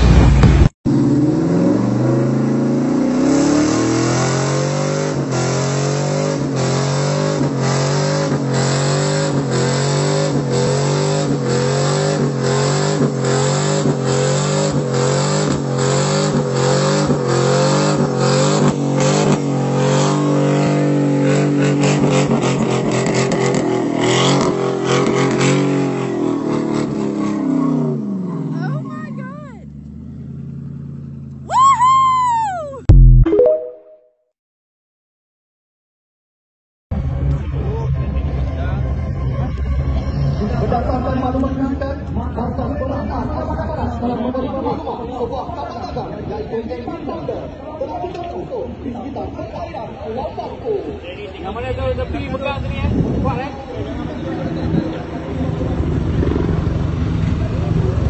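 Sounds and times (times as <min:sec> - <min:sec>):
truck engine revving high: 0:00.0 - 0:31.5, 0:51.7 - 0:58.0.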